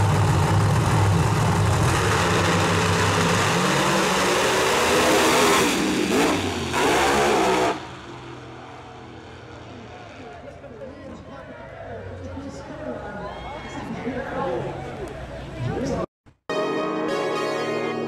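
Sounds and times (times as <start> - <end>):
drag car engines at full throttle: 0.0 - 13.0
distant engine sound: 0.0 - 15.6.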